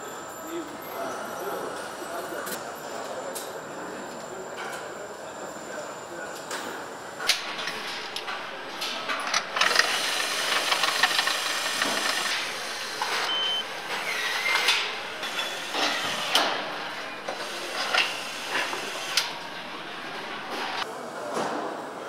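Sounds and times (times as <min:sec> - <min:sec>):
clicks and clanks of tools: 0:06.4 - 0:16.6
cordless power tool whirring: 0:09.4 - 0:13.0
steady machinery hiss: 0:09.4 - 0:20.8.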